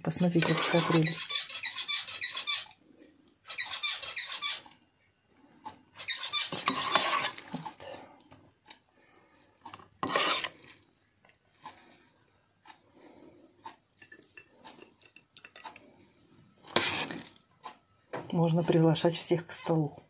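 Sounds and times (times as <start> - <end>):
metal spoon scraping pan: 0.1 - 2.5, 6.0 - 7.8, 9.7 - 10.8, 16.6 - 17.4.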